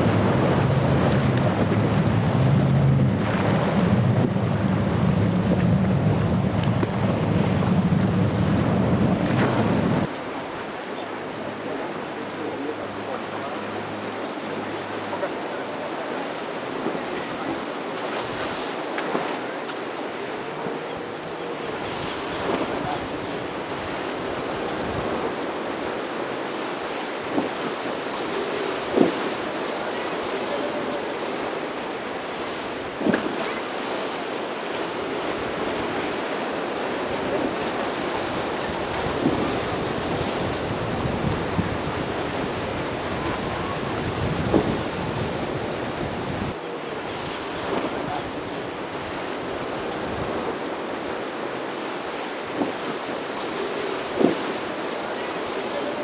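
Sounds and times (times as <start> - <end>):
wind buffeting the microphone: 0.0 - 10.1, 21.8 - 25.9, 35.0 - 51.2
choppy water: 0.0 - 56.0.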